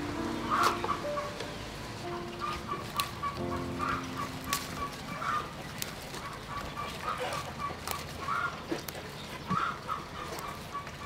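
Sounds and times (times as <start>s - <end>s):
chickens clucking: 0.0s - 11.0s
leaves snapping off stems: 2.5s - 9.6s.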